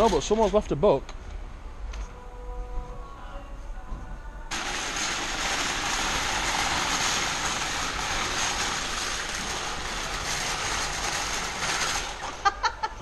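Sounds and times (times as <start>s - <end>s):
shopping trolley wheels rattling: 0.0s - 0.7s, 4.5s - 12.8s.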